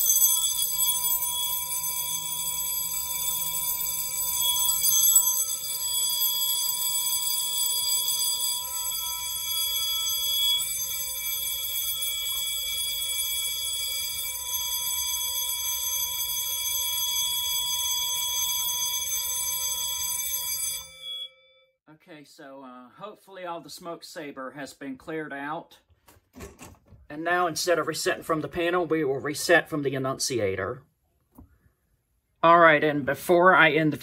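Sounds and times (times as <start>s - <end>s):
fire alarm bell ringing: 0.0s - 21.8s.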